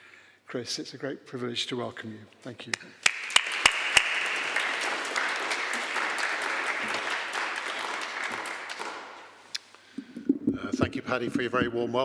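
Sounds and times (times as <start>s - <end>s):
audience applause: 3.0s - 9.4s.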